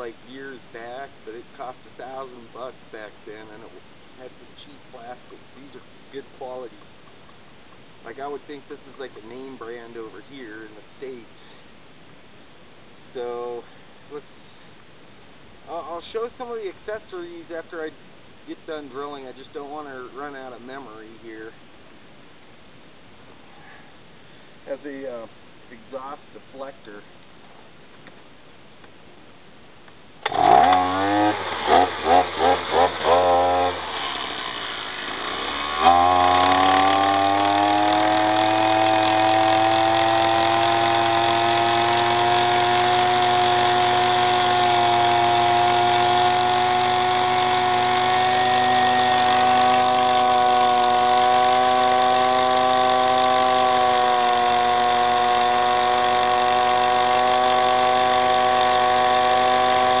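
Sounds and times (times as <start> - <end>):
drill boring into concrete: 30.2 - 60.0
two-stroke engine running: 30.2 - 60.0.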